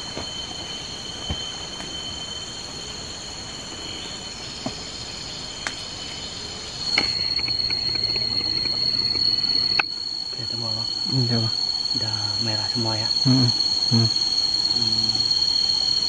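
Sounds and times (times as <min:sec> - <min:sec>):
insects droning high: 0:00.0 - 0:16.0.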